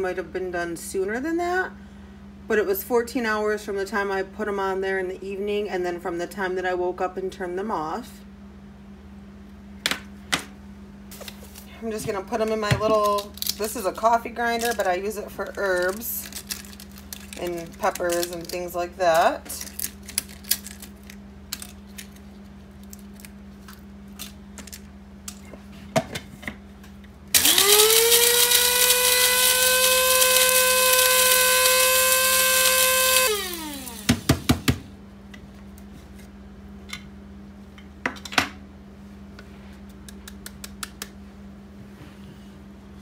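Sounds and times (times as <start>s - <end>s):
coffee grinder motor whining: 27.4s - 34.4s.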